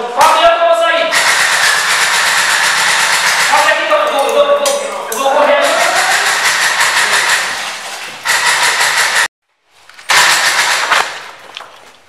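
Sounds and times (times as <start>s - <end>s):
airsoft rifle full-auto bursts: 1.1s - 3.8s, 5.6s - 7.6s, 8.2s - 9.3s, 10.1s - 11.2s.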